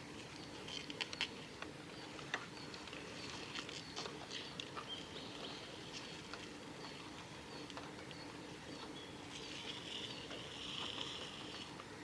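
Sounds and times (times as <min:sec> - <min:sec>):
small birds chipping: 0:00.0 - 0:12.0.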